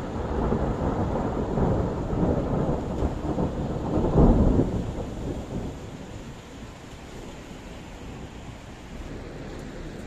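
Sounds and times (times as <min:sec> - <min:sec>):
rolling thunder: 0:00.0 - 0:07.4.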